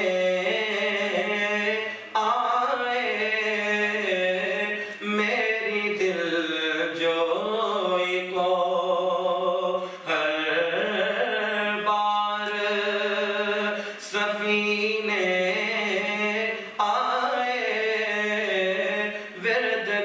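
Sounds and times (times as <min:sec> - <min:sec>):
short breaths: 0:04.8 - 0:05.0, 0:09.8 - 0:10.1, 0:13.8 - 0:14.0.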